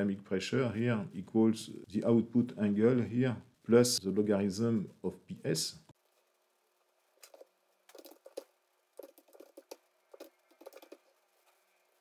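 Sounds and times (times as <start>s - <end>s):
faint keyboard typing: 7.2s - 11.7s.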